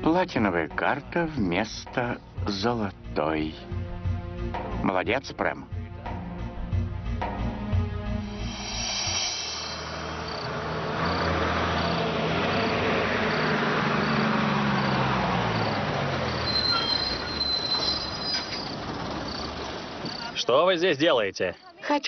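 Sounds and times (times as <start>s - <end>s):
bus engine slowing: 7.9s - 20.6s
crickets chirping: 8.2s - 22.0s
brake squeal: 8.4s - 20.4s.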